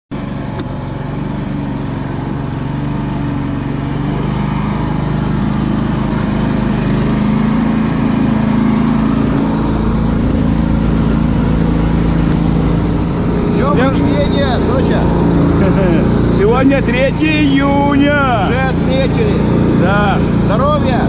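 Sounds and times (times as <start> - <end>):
off-road vehicle engine running: 0.1 - 21.0.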